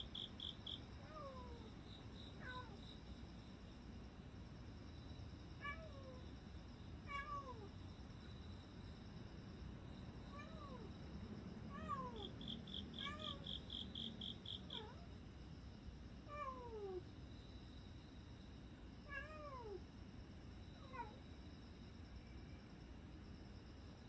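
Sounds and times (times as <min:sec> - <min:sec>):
cat meowing: 0:02.4 - 0:02.8, 0:07.1 - 0:07.7, 0:11.7 - 0:12.3, 0:13.0 - 0:13.6, 0:14.6 - 0:15.0.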